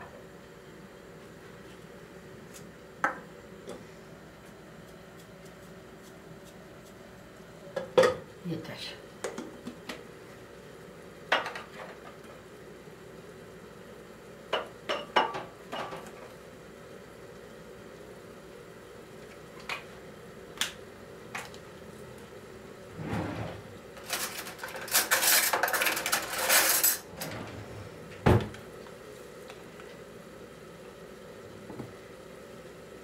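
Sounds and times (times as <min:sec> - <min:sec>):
metal cutlery clattering: 0:24.0 - 0:27.1.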